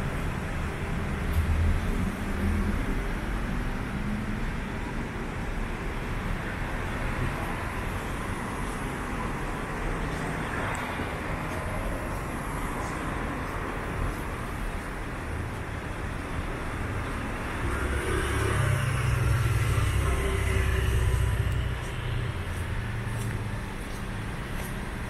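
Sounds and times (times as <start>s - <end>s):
light street traffic: 0.0s - 25.0s
vehicle engine rumbling: 0.0s - 25.0s.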